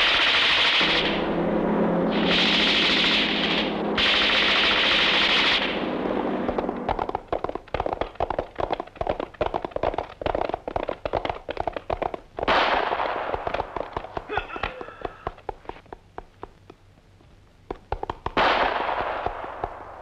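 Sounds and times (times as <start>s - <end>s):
sharp gunshots: 0.0s - 7.3s, 12.5s - 14.8s, 18.2s - 20.0s
dense loud noise: 0.0s - 7.7s.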